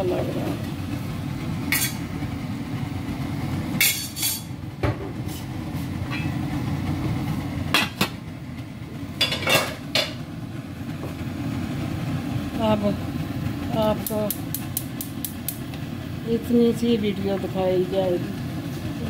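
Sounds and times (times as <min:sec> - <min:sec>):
gas stove rumble: 0:00.0 - 0:19.0
pot lid clanking on metal pot: 0:03.8 - 0:05.0, 0:06.1 - 0:06.4, 0:09.2 - 0:10.2.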